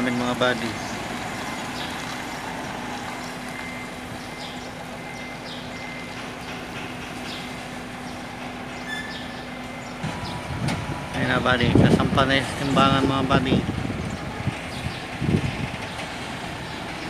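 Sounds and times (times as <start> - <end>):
distant diesel engine humming: 0.0 - 17.0.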